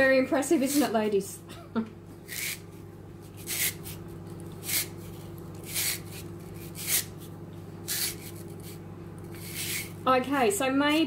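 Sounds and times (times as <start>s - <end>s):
steady low hum: 0.0s - 11.0s
spiralizer rasping through radish: 0.6s - 1.0s, 2.3s - 10.0s.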